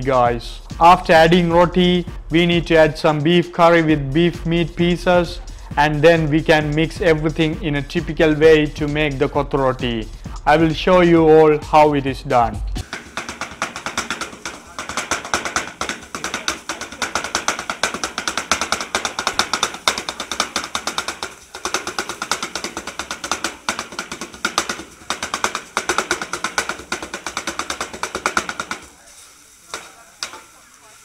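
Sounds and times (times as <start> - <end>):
metal spatulas chopping on hotplate: 12.8 - 30.6.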